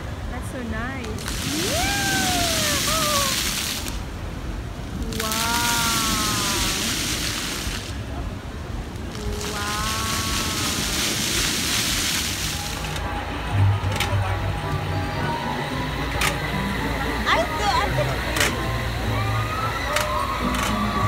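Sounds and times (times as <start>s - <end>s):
fountain jets spraying water: 0.0s - 21.0s.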